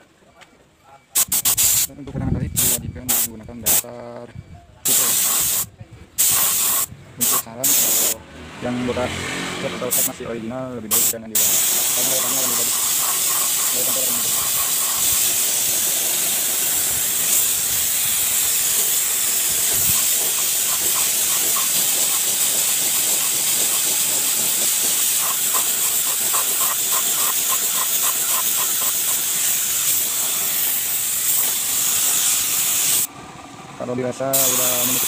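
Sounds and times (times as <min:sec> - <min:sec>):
spray gun hissing: 0:01.2 - 0:01.9, 0:04.9 - 0:08.2, 0:09.9 - 0:10.2, 0:10.9 - 0:33.1, 0:34.3 - 0:35.0.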